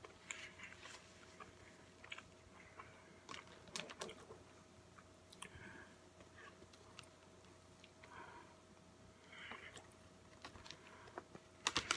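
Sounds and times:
crispy crackles: 0:00.0 - 0:04.4, 0:09.4 - 0:11.9
chewing and biting: 0:00.0 - 0:05.5
paper wrapper crinkling: 0:11.6 - 0:11.9.

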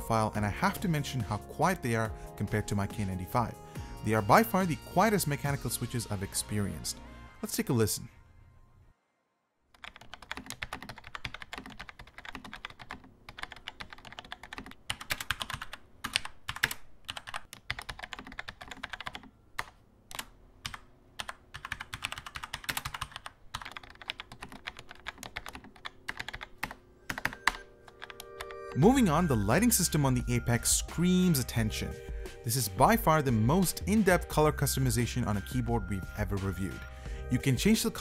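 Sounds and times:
typing on mechanical keyboard: 0:09.8 - 0:28.6.

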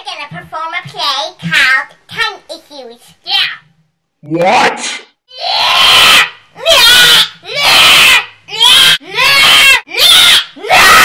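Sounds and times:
child shrieking: 0:05.3 - 0:11.0.

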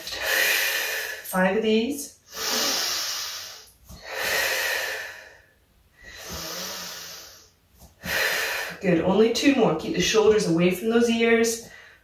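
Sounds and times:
woman breathing heavily: 0:00.0 - 0:01.4, 0:02.2 - 0:08.8, 0:11.6 - 0:12.0.

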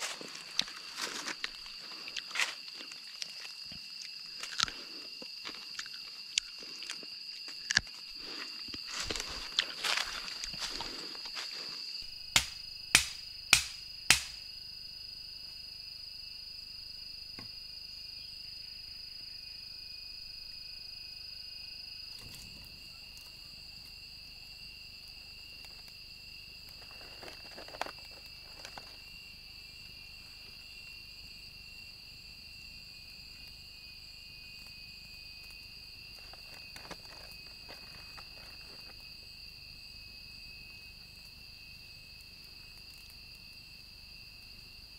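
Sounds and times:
insect chorus: 0:00.0 - 0:44.9
sharp knocks: 0:12.3 - 0:14.4.

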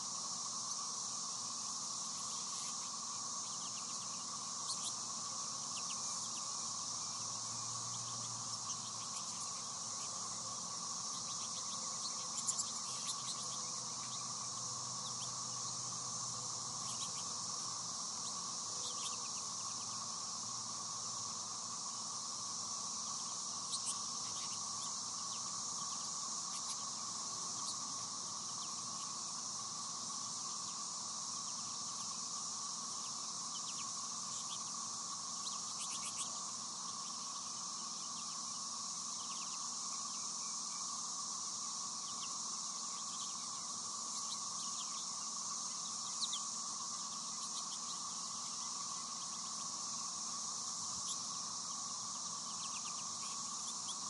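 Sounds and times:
high-pitched insect drone: 0:00.0 - 0:54.0
finch chirps: 0:02.2 - 0:15.9, 0:16.8 - 0:20.1, 0:23.0 - 0:29.2, 0:35.4 - 0:38.6, 0:42.0 - 0:49.7, 0:50.9 - 0:54.0.

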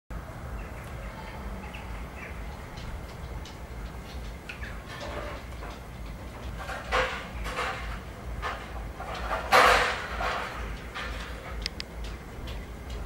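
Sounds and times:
soft clicks: 0:11.6 - 0:12.6.

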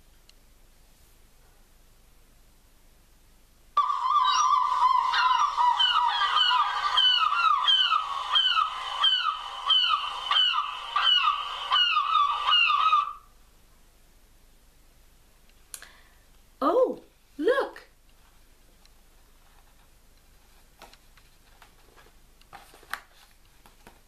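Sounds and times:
seagulls calling: 0:03.8 - 0:13.3.

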